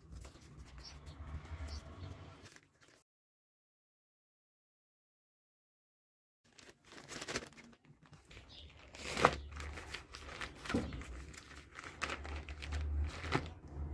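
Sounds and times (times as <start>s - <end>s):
plastic bag crinkling: 6.5s - 13.9s.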